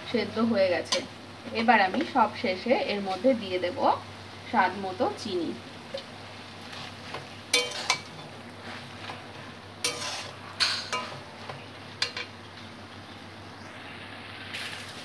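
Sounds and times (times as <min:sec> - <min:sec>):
faint sizzle: 0:00.0 - 0:15.0
metal spatula scraping a pan: 0:06.7 - 0:12.3.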